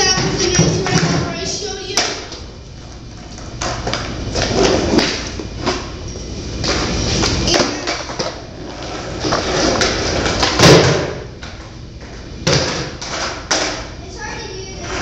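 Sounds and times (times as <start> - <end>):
skateboard wheels rolling on concrete: 0.0 - 15.0
skateboard striking wooden box: 9.7 - 11.3.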